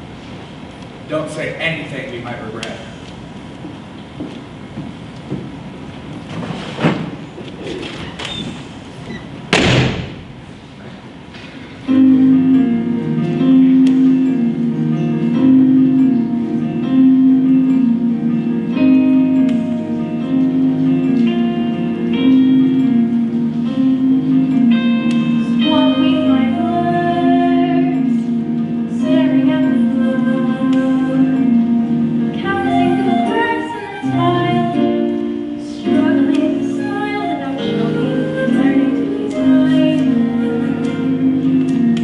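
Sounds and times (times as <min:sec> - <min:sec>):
single thud: 0:09.5 - 0:10.4
instrumental stage musical music: 0:11.4 - 0:42.0.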